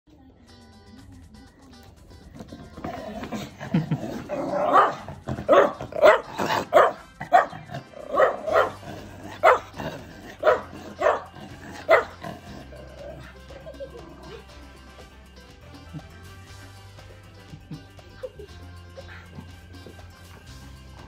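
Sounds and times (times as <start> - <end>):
dog barking: 3.1 - 13.3, 19.0 - 19.5.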